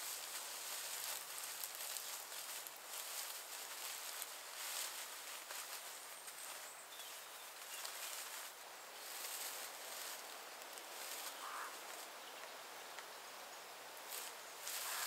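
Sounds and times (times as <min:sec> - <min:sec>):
dry straw rustling and crackling: 0:00.0 - 0:13.2, 0:13.8 - 0:15.0.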